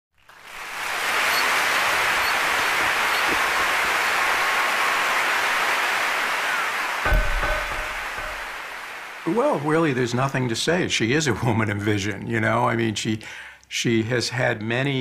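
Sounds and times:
audience applause: 0.2s - 10.2s.

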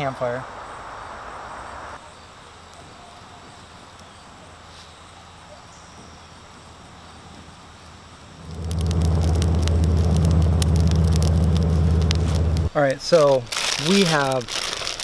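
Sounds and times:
soft hiss: 3.8s - 13.4s.

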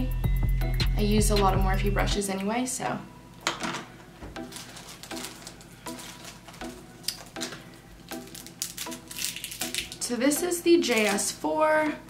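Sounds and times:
quiet background music: 0.0s - 12.0s
objects clicking and rustling: 3.4s - 10.0s, 10.8s - 11.3s.

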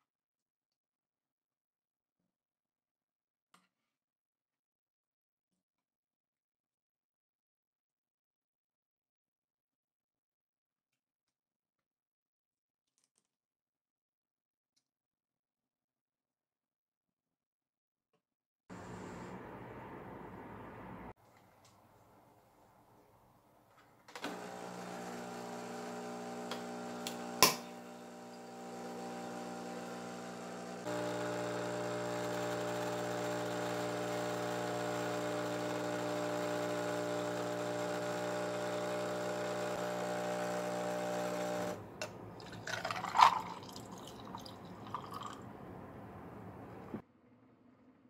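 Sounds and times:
coffee machine pump hum: 18.7s - 21.1s, 24.2s - 45.4s
coffee pouring between glasses: 24.3s - 45.5s
glass and ice clinking: 42.4s - 45.4s.

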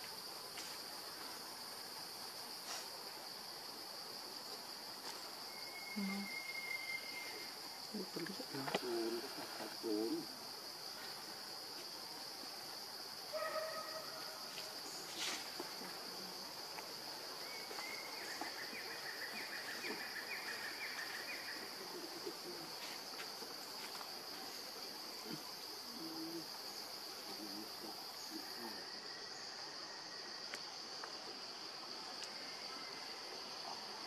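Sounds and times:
high-pitched insect drone: 5.4s - 8.0s.

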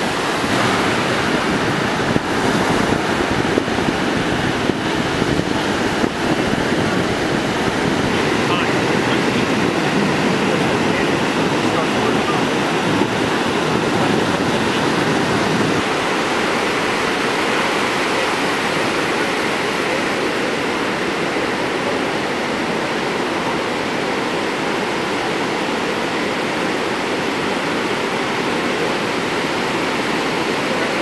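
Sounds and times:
ocean waves crashing: 0.0s - 31.0s.

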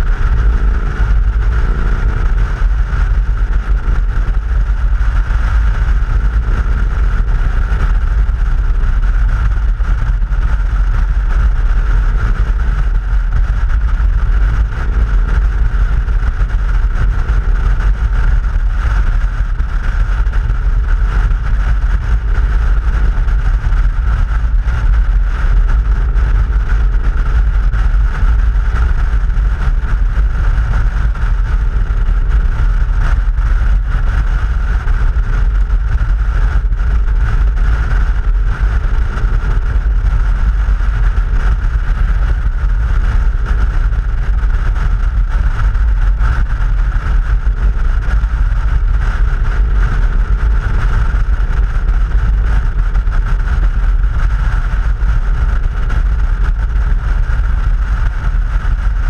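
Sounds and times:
motorcycle engine: 0.0s - 37.5s
wind rumble on microphone: 0.0s - 59.0s.

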